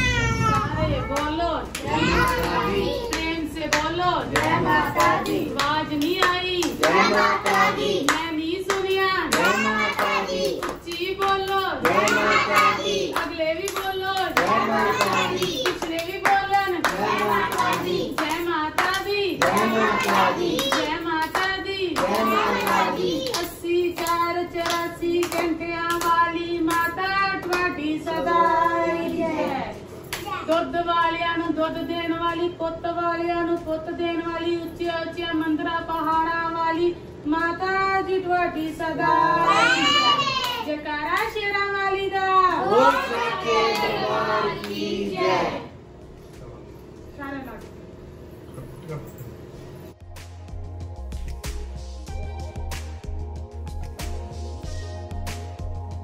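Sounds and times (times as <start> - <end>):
hand clapping: 1.1 - 29.5, 39.8 - 41.4, 42.7 - 45.0, 52.7 - 54.4, 55.2 - 55.9
devotional singing: 1.8 - 29.8, 42.6 - 45.7.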